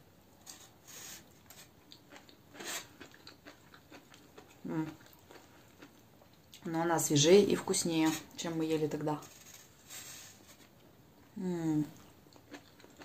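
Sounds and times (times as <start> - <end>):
person chewing: 1.4 - 6.6, 12.0 - 13.0.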